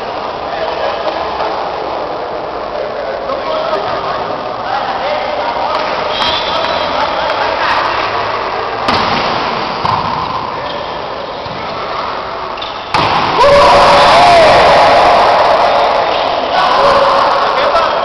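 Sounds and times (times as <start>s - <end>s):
people shouting in sports hall: 13.0s - 18.0s.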